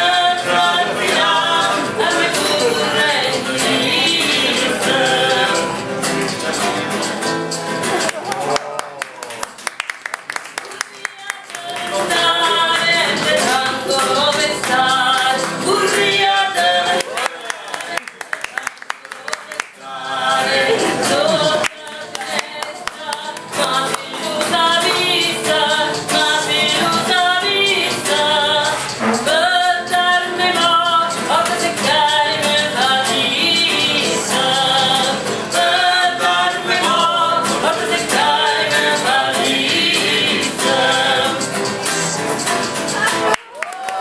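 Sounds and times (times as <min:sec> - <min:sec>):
person singing: 0:00.0 - 0:06.8, 0:10.6 - 0:43.3
acoustic guitar: 0:00.0 - 0:44.0.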